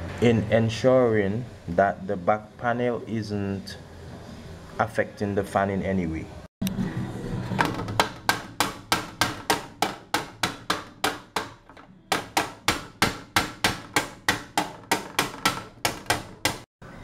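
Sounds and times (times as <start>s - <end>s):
tool tapping thin metal plate: 7.6s - 16.7s.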